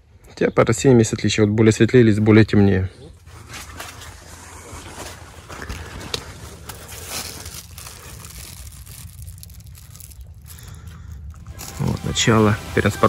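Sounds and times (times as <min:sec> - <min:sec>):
low steady rumble: 0:03.1 - 0:13.0
leaves rustling by hand: 0:03.2 - 0:13.0.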